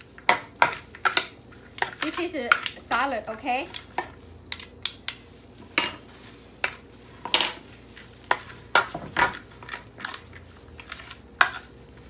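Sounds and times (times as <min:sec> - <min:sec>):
wet crunching and rustling: 0:03.2 - 0:12.0.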